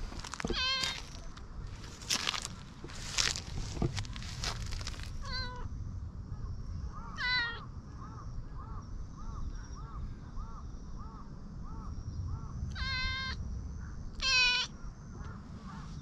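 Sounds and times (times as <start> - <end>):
wind rumble on microphone: 0.0 - 16.0
cat meowing: 0.4 - 1.0, 5.2 - 5.6, 7.2 - 7.6, 12.7 - 13.4, 14.2 - 14.7.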